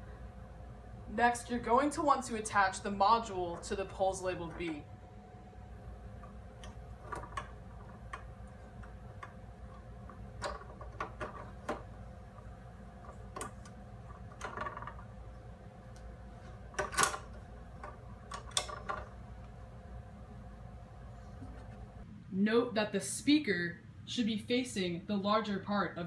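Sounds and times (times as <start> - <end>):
metal poles clacking and knocking: 3.4 - 4.8, 6.6 - 15.1, 16.7 - 19.2.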